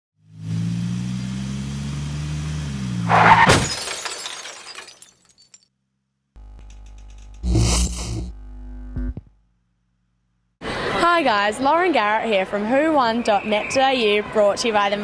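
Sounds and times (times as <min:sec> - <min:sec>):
engine hum: 0:00.2 - 0:03.4
car crash impact: 0:03.1 - 0:05.2
glass shattering and tinkling: 0:03.5 - 0:05.7.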